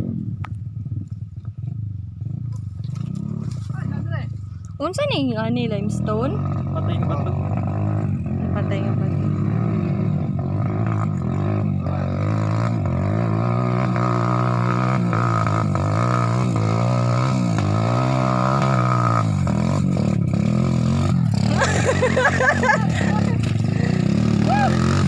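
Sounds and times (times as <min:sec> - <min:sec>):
dirt bike engine revving: 0:02.2 - 0:25.0.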